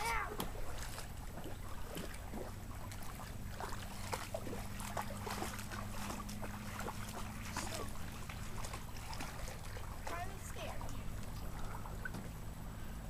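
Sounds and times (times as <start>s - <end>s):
light splashes and ticks: 0.0s - 13.0s
small waves lapping: 0.0s - 13.0s
steady low drone: 0.0s - 13.0s.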